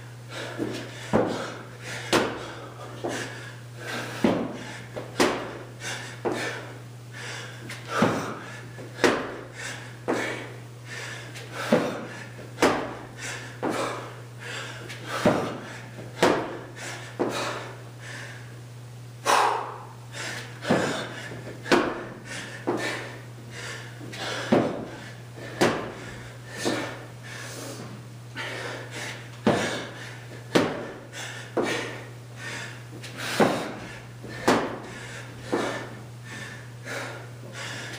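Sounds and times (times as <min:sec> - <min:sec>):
thuds of hands and feet on concrete: 0:00.5 - 0:03.3, 0:04.1 - 0:06.6, 0:07.7 - 0:10.4, 0:11.4 - 0:14.0, 0:14.9 - 0:17.7, 0:20.4 - 0:23.1, 0:24.0 - 0:27.0, 0:29.4 - 0:32.0, 0:33.0 - 0:36.0.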